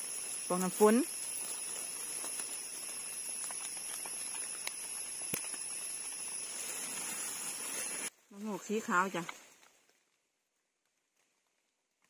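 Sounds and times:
forest background hiss: 0.0s - 12.0s
faint clicks: 3.4s - 6.2s.

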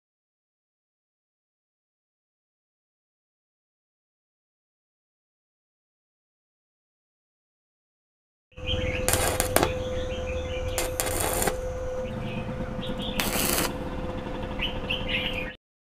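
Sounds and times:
faint birds chirping: 8.6s - 13.4s, 14.4s - 15.6s
steady welder hum: 8.6s - 14.6s
welding arc crackle: 9.1s - 9.8s, 10.8s - 11.6s, 13.2s - 13.8s.

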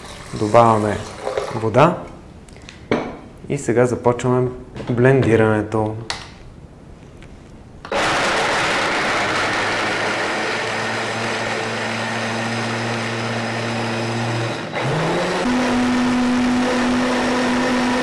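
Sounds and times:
blender grinding nuts: 7.9s - 18.0s.

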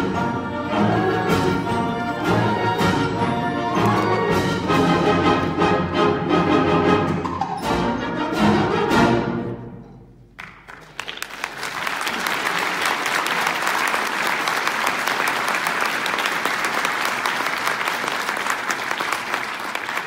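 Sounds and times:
audience applauding: 10.4s - 20.0s.

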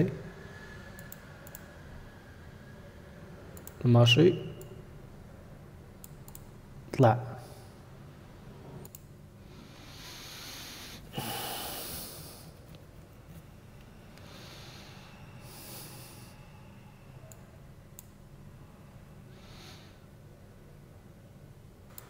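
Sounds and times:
faint clicks: 1.0s - 1.7s, 6.0s - 6.5s
man breathing close to microphone: 9.4s - 12.6s, 14.1s - 16.6s.

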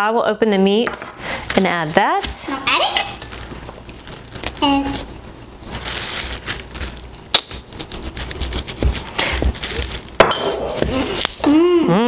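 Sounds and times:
plastic film crinkling: 1.5s - 10.2s
knife slitting plastic film: 5.8s - 10.2s.

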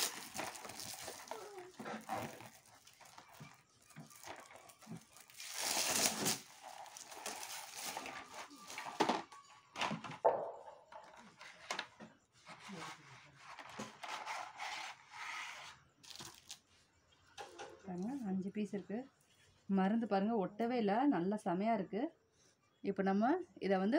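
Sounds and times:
paper and cardboard crinkling: 0.0s - 9.4s.

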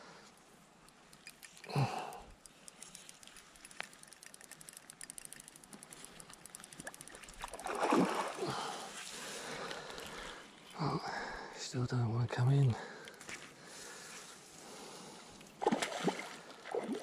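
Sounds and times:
fishing reel ticking: 0.8s - 7.8s.

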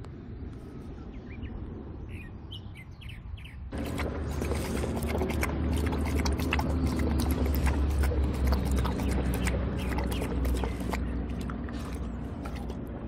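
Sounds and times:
small birds chirping: 1.0s - 12.8s
dog lapping water from metal bowl: 3.7s - 13.0s.

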